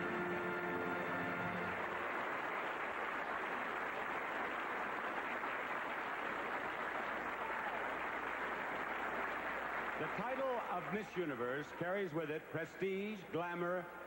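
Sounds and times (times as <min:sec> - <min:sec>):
band music: 0:00.0 - 0:01.8
large audience applauding: 0:00.0 - 0:11.9.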